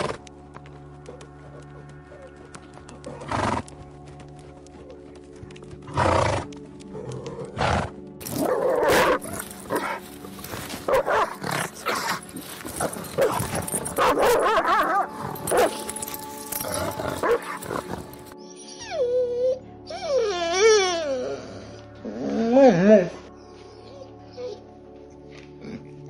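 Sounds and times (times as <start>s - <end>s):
background music: 0.0s - 26.0s
dogs barking and yapping: 8.2s - 18.4s.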